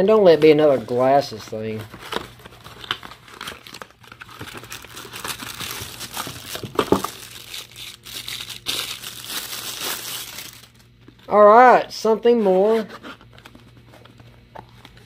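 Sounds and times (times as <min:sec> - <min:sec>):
shredded paper rustling: 0:01.7 - 0:10.8
plastic bag crinkling: 0:01.7 - 0:11.0.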